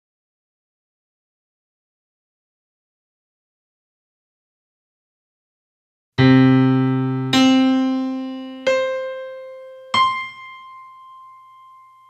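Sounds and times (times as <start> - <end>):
piano-like keyboard notes: 6.2 - 12.0.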